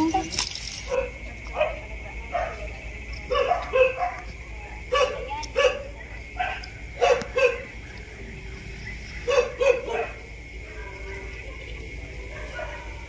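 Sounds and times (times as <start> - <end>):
dog barking: 0.9 - 2.7, 3.3 - 4.3, 4.9 - 8.0, 9.2 - 11.3, 12.2 - 13.0.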